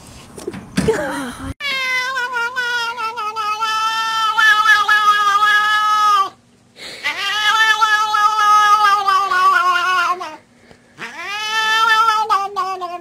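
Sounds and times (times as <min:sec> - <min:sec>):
cat yowling: 0:01.6 - 0:06.4, 0:07.0 - 0:10.4, 0:11.0 - 0:13.0.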